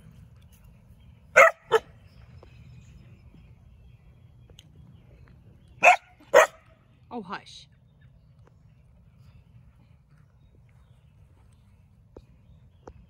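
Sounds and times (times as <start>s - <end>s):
puppy barking: 1.4s - 1.9s, 5.8s - 6.6s.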